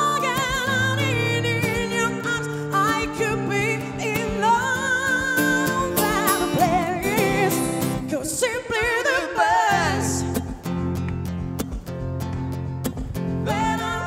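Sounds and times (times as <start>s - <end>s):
woman singing with vibrato: 0.0s - 10.6s, 13.4s - 14.0s
acoustic guitar: 0.0s - 14.0s.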